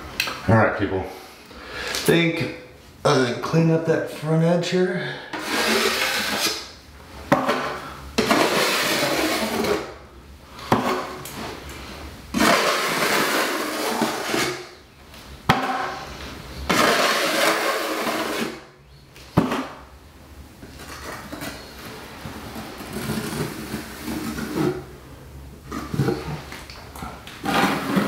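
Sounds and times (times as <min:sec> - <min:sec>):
brush scraping on board: 0:05.4 - 0:06.7, 0:08.2 - 0:09.9.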